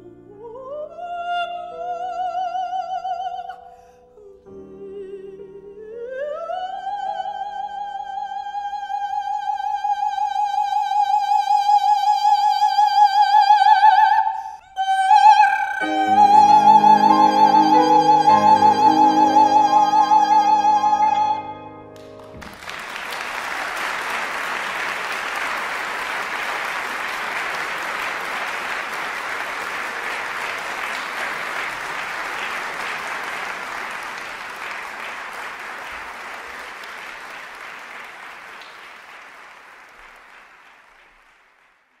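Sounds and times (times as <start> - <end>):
audience applause: 22.0 - 42.0.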